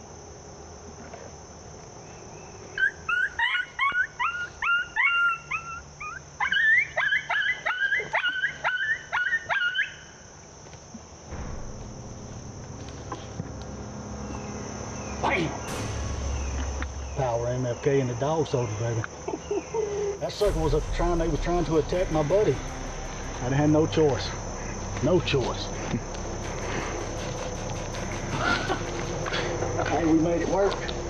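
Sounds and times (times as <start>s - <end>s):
coyotes yipping: 2.7s - 10.2s
low steady rumble: 11.3s - 18.8s, 20.3s - 31.0s.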